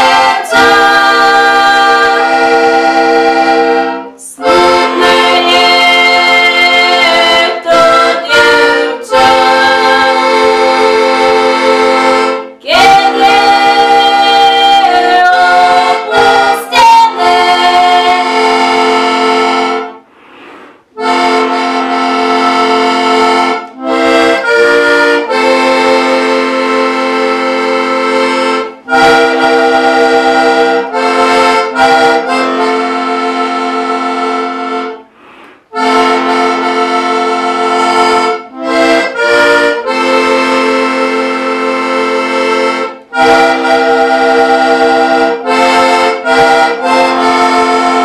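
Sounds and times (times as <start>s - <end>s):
button accordion playing folk tune: 0.0s - 48.0s.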